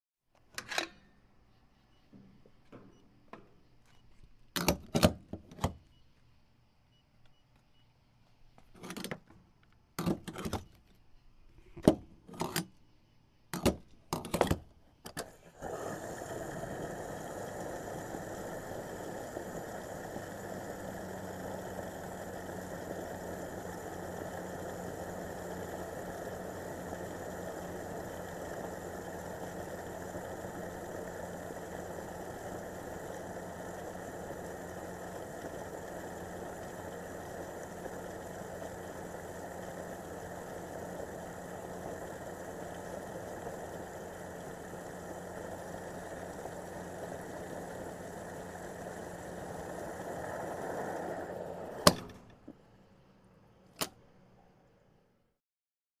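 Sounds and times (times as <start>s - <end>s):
fuel pump dispensing: 13.6s - 52.6s
fuel nozzle clicks and clunks: 53.7s - 54.0s.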